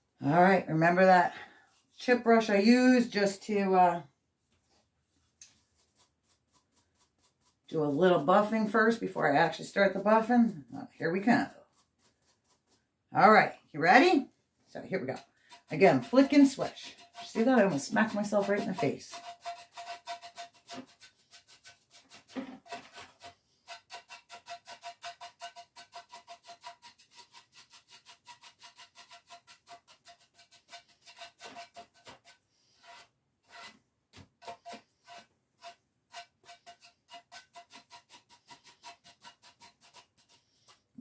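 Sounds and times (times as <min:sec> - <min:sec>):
brush swishing on wax: 0:04.6 - 0:08.6, 0:11.2 - 0:12.8, 0:15.5 - 0:22.4.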